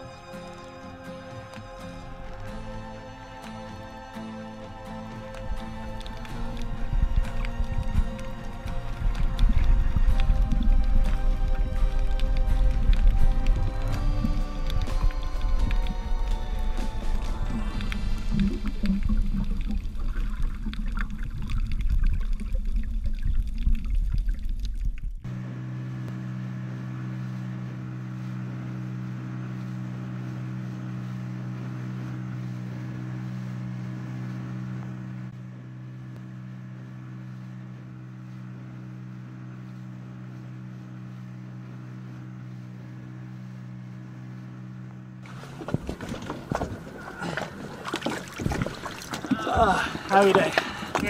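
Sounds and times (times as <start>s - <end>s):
outboard motor running: 0.0s - 23.5s, 25.2s - 51.0s
underwater rushing and bubbling: 4.2s - 25.3s, 45.2s - 51.0s.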